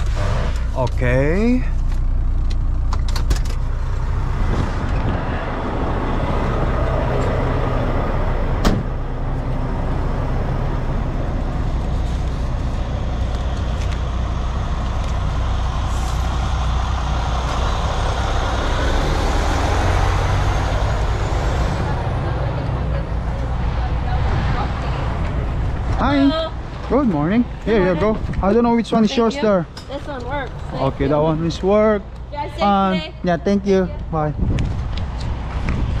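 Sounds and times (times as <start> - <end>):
diesel truck engine idling: 1.0 - 34.1
truck door shutting: 8.5 - 9.0.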